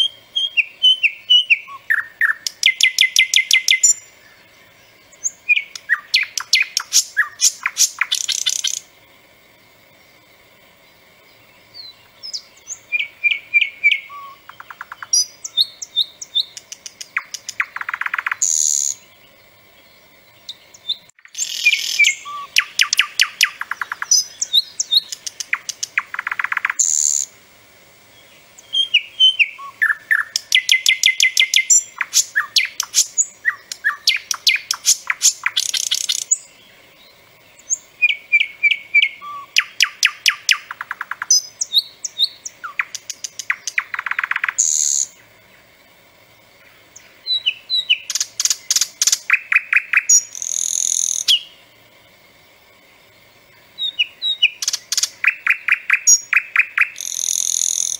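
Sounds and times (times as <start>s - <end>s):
nightingale singing: 0.0s - 27.4s, 28.0s - 57.9s.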